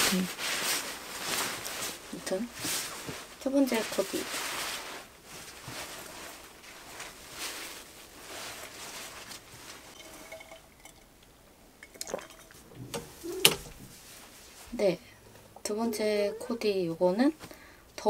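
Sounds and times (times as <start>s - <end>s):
clothes rustling: 0.0s - 11.0s, 12.0s - 15.0s.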